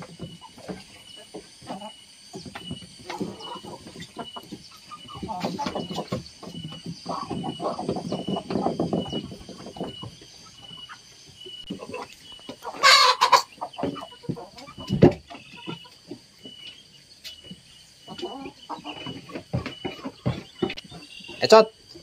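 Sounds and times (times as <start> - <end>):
chickens clucking: 0.0 - 22.0
harsh burst from chickens: 11.8 - 15.2.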